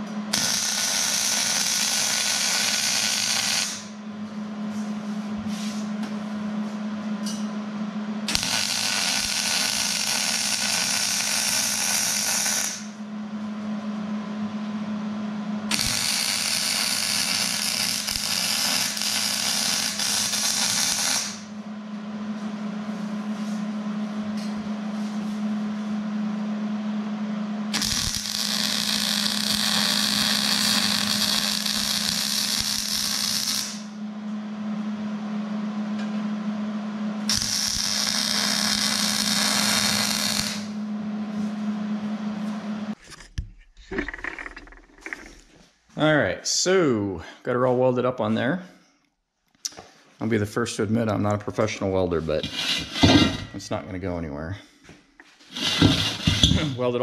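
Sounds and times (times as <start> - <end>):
electric arc welding: 0.0 - 4.0, 8.3 - 13.0, 15.7 - 21.5, 27.7 - 34.0, 37.3 - 40.8, 55.5 - 56.6
steady low hum: 0.0 - 49.0, 49.6 - 57.0.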